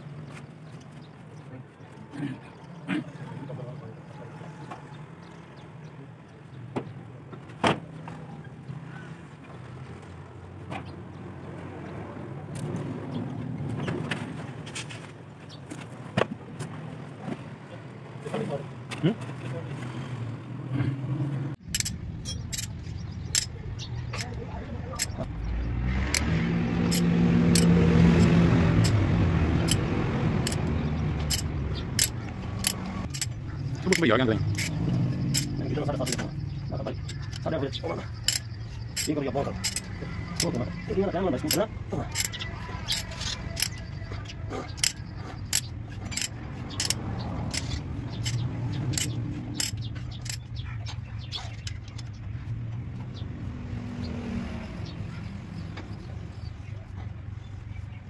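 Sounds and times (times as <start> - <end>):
engine running: 19.0 - 57.8
hand tool metallic clicks: 21.6 - 24.4, 25.0 - 25.3, 26.1 - 29.0, 29.6 - 36.4, 38.2 - 40.8, 41.4 - 44.0, 44.7 - 50.5
metal clinks of spanner and studs: 21.6 - 24.4, 29.6 - 50.6.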